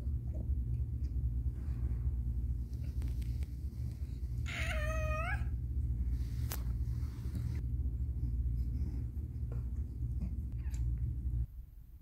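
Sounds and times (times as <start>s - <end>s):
steady low hum: 0.0s - 12.0s
cat meowing: 4.4s - 5.5s.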